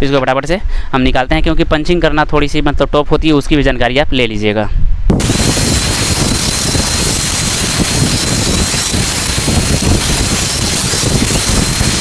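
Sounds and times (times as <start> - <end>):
angle grinder grinding metal: 5.2 - 12.0.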